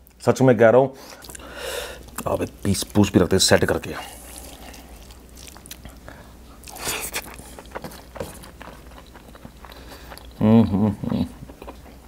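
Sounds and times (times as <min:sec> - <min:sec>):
person biting and chewing: 0:01.2 - 0:10.4.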